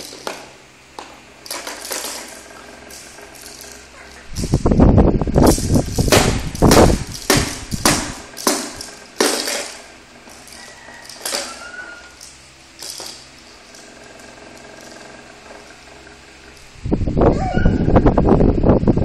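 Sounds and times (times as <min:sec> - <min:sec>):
knocks and thumps: 0:05.4 - 0:09.8.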